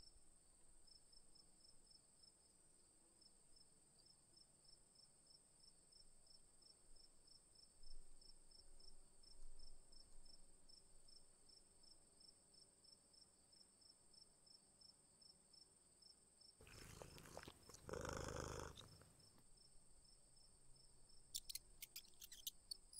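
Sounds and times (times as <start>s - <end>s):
crickets chirping: 16.6s - 22.9s.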